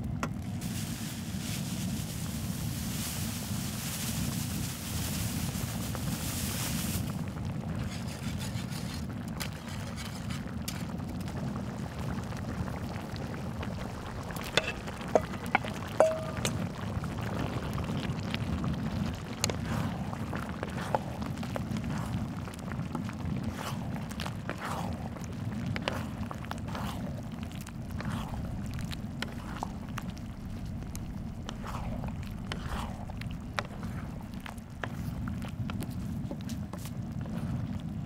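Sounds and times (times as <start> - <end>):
water pouring from a hose: 0.5 - 35.6
wooden spatulas stirring: 7.7 - 11.4, 13.6 - 38.0
steady low rumble: 11.3 - 38.0
metal bowl clinking against pan: 14.4 - 16.6.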